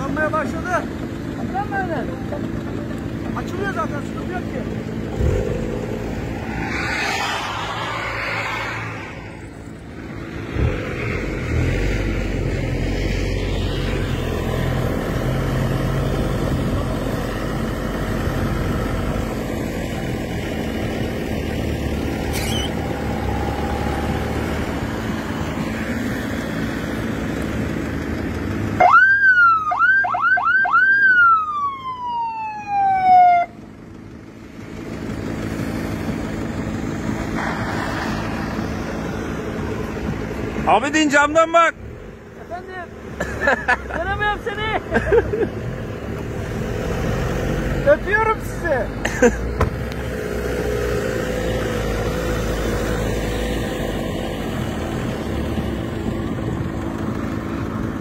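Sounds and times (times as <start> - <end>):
vehicle engine running: 0.0 - 11.4, 12.1 - 29.0, 33.5 - 46.6, 53.6 - 58.0
electronic siren whooping and wailing: 5.9 - 9.8, 22.4 - 25.3, 28.8 - 33.5.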